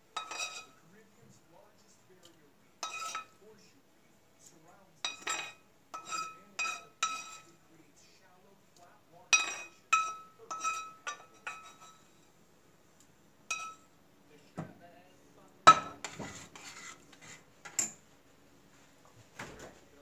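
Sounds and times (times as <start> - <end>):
metal spoon clinking on pot: 0.1 - 0.8, 2.8 - 3.4, 5.0 - 7.5, 9.3 - 12.1, 13.5 - 13.9
pot and pan clanking: 0.1 - 0.8, 2.8 - 3.4, 5.1 - 7.5, 9.3 - 12.1, 13.5 - 13.8, 15.7 - 16.8.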